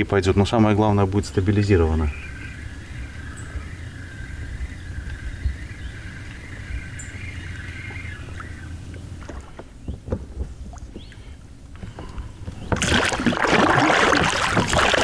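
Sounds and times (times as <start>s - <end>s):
light knocks from boat: 7.9s - 11.2s
loud steady water rush: 12.7s - 15.0s.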